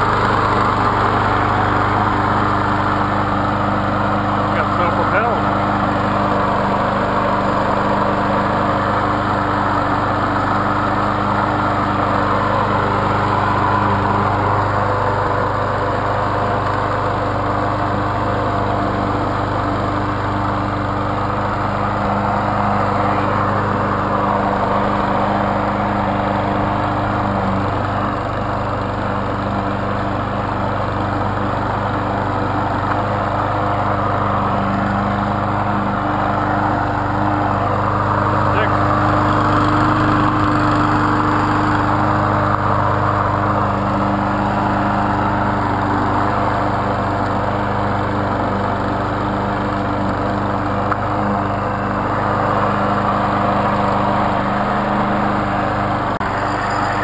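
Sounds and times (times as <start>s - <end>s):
lawn mower engine running: 0.0s - 57.0s.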